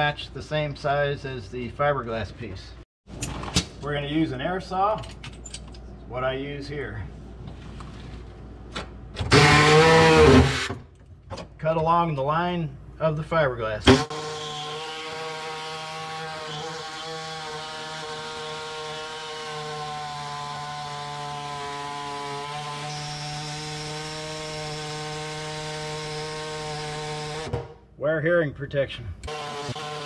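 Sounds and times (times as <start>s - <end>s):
pneumatic air saw cutting steel: 9.3s - 10.8s.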